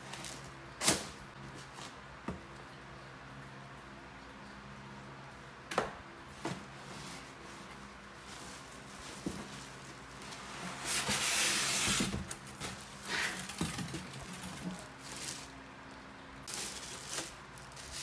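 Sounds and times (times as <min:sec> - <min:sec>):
plastic wrap and cardboard rustling: 0:00.0 - 0:02.1, 0:06.4 - 0:15.7, 0:16.4 - 0:18.0
faint steady hum: 0:00.0 - 0:18.0.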